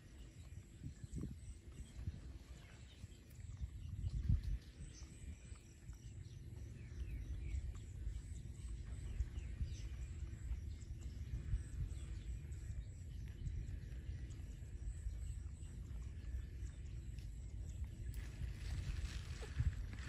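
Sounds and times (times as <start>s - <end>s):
faint bird chirps: 0.0s - 20.0s.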